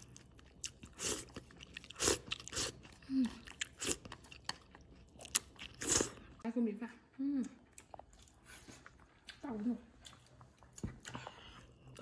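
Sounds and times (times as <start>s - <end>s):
wet chewing: 0.0s - 6.4s, 7.4s - 12.0s
slurping noodles: 5.7s - 6.2s.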